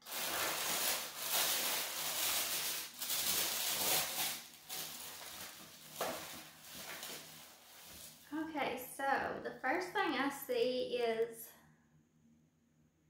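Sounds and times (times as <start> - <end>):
packaging rustling and crinkling: 0.0 - 8.4.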